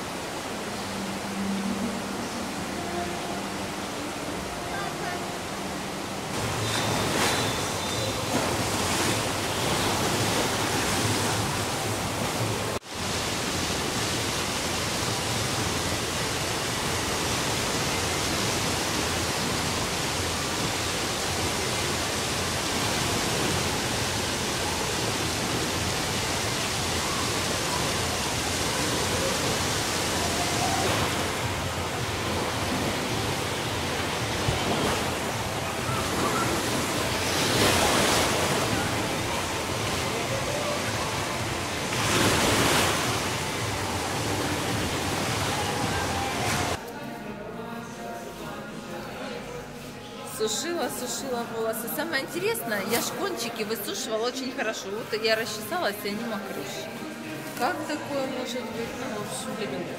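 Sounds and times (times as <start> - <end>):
churning waves: 0.0 - 46.8.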